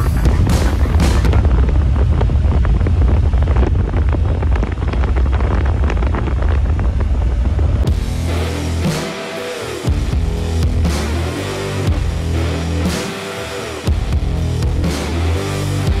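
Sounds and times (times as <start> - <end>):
music: 0.0 - 1.7, 7.8 - 16.0
wind buffeting microphone: 0.0 - 8.4.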